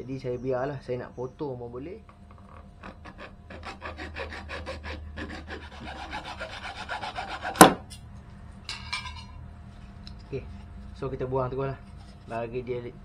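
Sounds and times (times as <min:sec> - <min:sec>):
loud sharp knock: 0:07.6 - 0:07.8.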